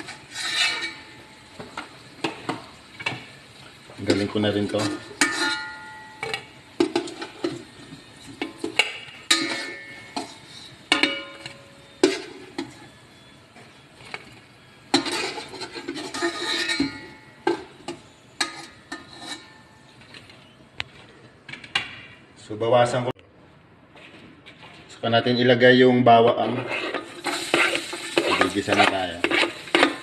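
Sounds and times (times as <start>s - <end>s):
spoon clinking against metal pot: 4.8s - 7.3s, 8.4s - 12.7s.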